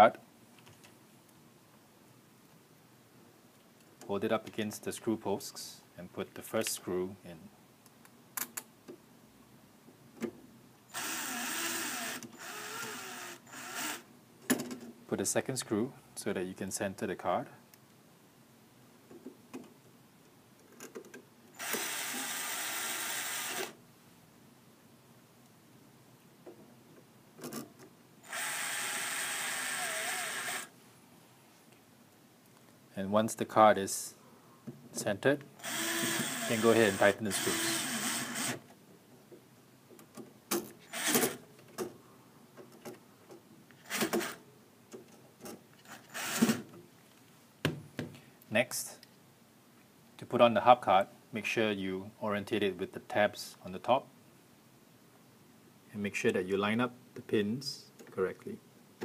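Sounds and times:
cordless screwdriver running: 11.0s - 14.0s, 21.6s - 23.7s, 28.2s - 30.7s, 35.6s - 38.6s.

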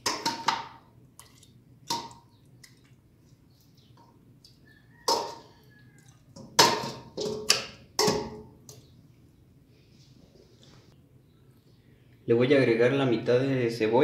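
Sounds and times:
metal spoon clanking on pots: 0.0s - 0.8s, 1.9s - 2.3s, 5.0s - 5.6s, 6.4s - 8.9s.

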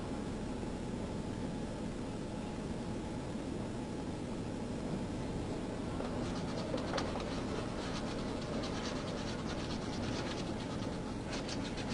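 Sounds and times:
scratchy rustling and clicking: 6.0s - 11.9s.

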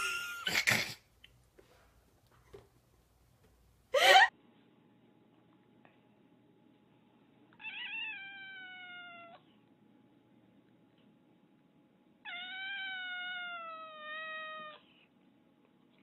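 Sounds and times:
cat meowing: 7.6s - 9.4s, 12.2s - 14.8s.

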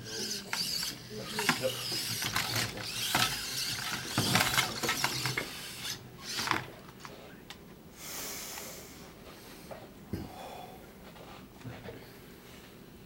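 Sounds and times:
servos driving robot wheels: 0.0s - 6.7s.

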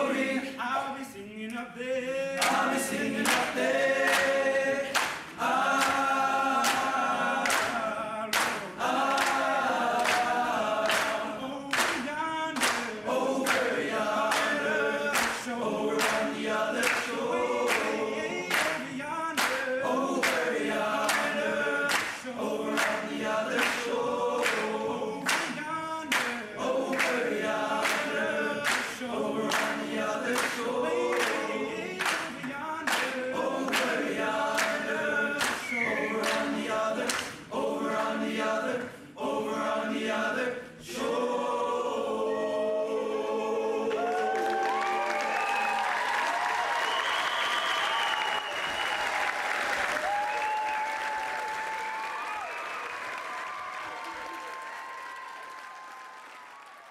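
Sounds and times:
boys choir singing: 0.0s - 45.4s
hand claps: 2.4s - 37.4s, 43.9s - 56.9s.

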